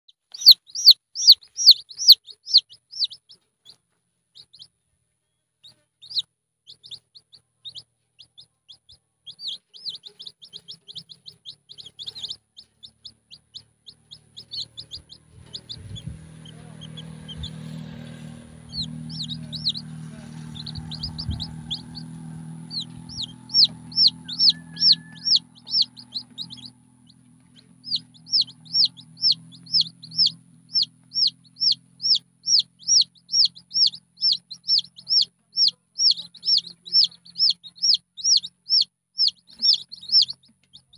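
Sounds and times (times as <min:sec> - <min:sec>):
chicks peeping: 0:00.3 - 0:04.8, 0:05.6 - 0:40.9
low steady hum: 0:09.4 - 0:40.9.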